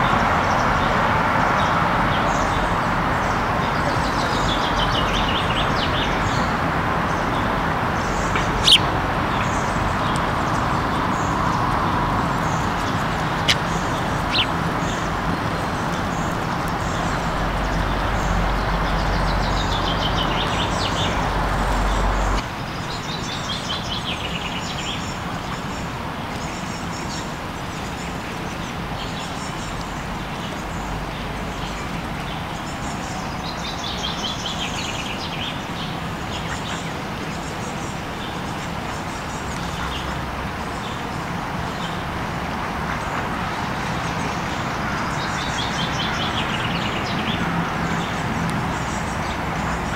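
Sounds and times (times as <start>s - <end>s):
songbirds chirping trills: 1.6s - 49.9s.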